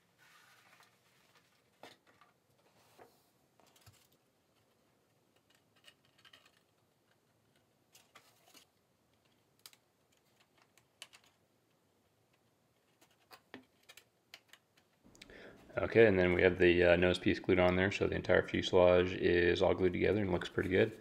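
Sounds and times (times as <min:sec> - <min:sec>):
plastic parts clicking and tapping: 0:03.6 - 0:15.2.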